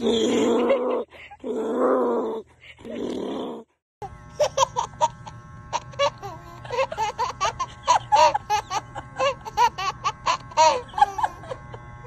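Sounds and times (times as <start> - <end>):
electric hair clippers humming: 4.0 - 12.0
baby giggling: 4.4 - 11.6.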